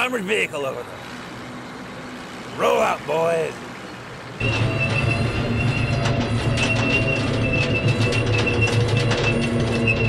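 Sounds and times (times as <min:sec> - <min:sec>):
high wavering squeal: 0:04.4 - 0:10.0
tracks clanking: 0:04.4 - 0:10.0.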